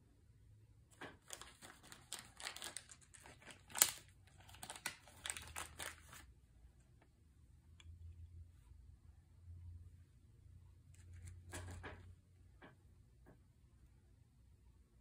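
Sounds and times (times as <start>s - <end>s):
sharp crack of packaging: 1.1s - 6.2s
packaging crinkling: 1.1s - 6.3s.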